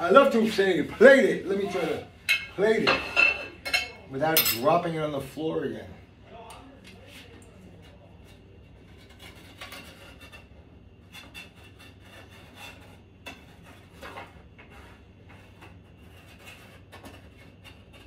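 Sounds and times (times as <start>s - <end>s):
spatula scraping a pan: 7.8s - 18.0s.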